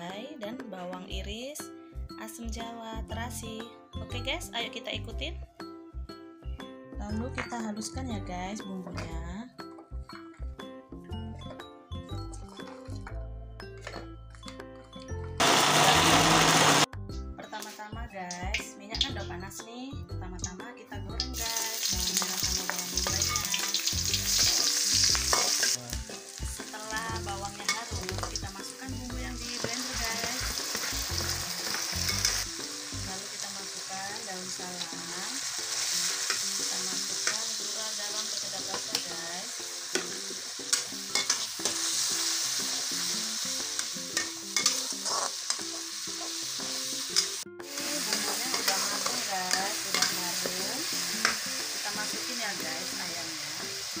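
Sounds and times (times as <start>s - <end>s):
onions sizzling in hot oil: 15.4s - 16.9s, 21.2s - 54.0s
metal spatula scraping a wok: 44.2s - 50.5s.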